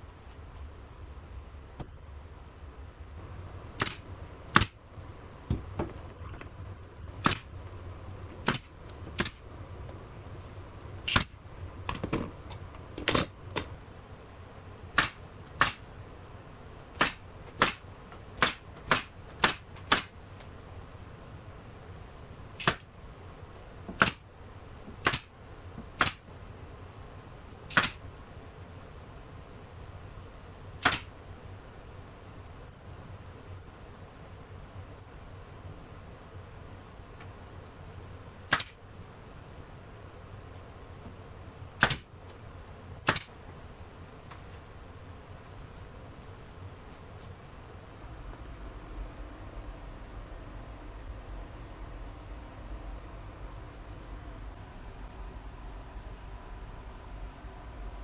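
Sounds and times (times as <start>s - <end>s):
nail gun firing: 3.8s - 4.8s, 7.2s - 7.5s, 8.4s - 9.4s, 11.0s - 11.3s, 15.0s - 15.8s, 17.0s - 17.8s, 18.4s - 20.1s, 22.6s - 22.9s, 24.0s - 24.2s, 25.0s - 25.3s, 26.0s - 26.2s, 27.7s - 28.0s, 30.8s - 31.1s, 38.5s - 38.8s, 41.8s - 42.1s, 43.0s - 43.3s.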